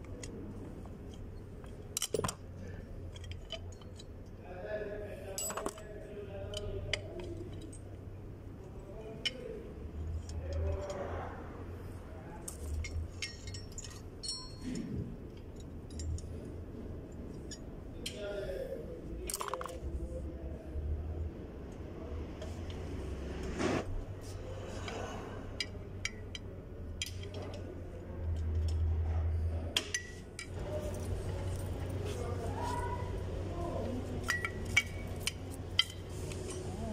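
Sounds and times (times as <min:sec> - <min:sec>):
metallic clinks of brake parts: 0:00.0 - 0:04.4, 0:05.2 - 0:11.2, 0:12.4 - 0:18.5, 0:19.2 - 0:19.9, 0:24.6 - 0:32.2, 0:33.7 - 0:36.9
steady low hum: 0:00.0 - 0:36.9.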